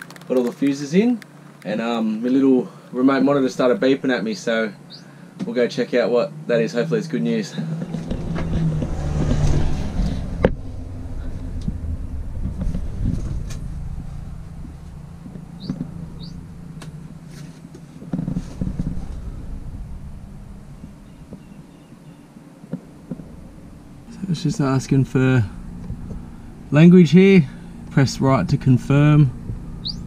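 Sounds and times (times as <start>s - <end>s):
camera handling rumble: 0.0s - 1.8s, 11.3s - 19.6s, 25.6s - 26.6s
rustling with clicks and knocks: 0.0s - 3.0s, 7.6s - 19.6s.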